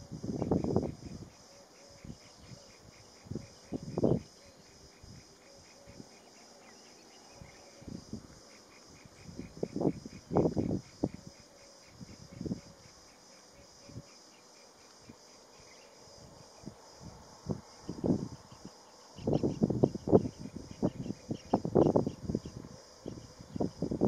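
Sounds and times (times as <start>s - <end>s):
insects chirping: 0.0s - 24.0s.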